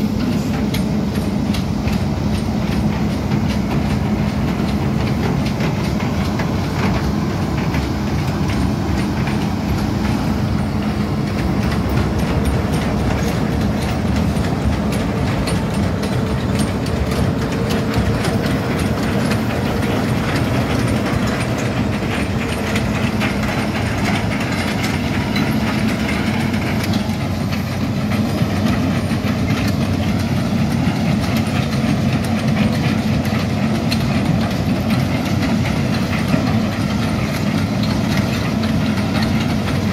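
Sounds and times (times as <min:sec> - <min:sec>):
diesel engine humming: 0:00.0 - 0:39.9
track links clattering: 0:00.2 - 0:39.9.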